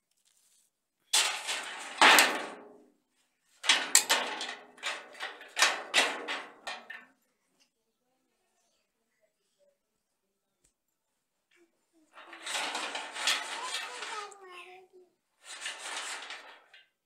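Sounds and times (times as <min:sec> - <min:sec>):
metal tray clattering on concrete: 0:01.2 - 0:02.8, 0:03.6 - 0:07.0, 0:12.2 - 0:14.4, 0:15.4 - 0:17.0.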